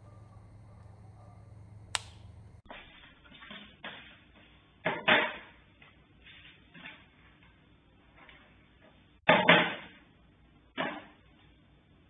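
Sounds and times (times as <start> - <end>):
sharp click: 1.9 - 2.3.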